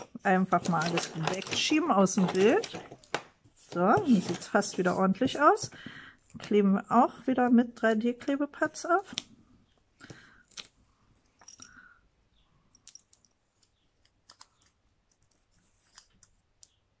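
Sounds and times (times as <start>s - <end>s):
paper and card rustling: 0.0s - 5.9s.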